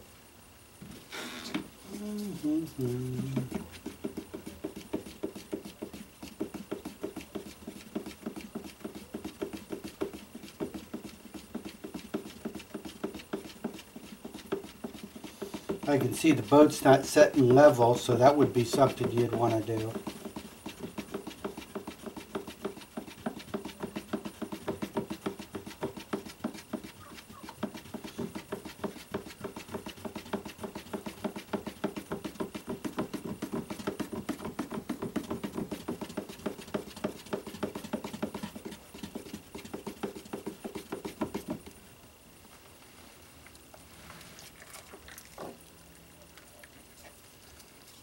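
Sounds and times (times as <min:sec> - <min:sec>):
stick scraping in plastic cup: 0:13.4 - 0:23.6.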